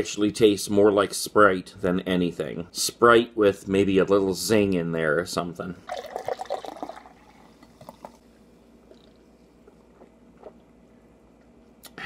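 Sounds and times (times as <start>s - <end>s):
soda pouring into a glass: 5.8s - 8.2s.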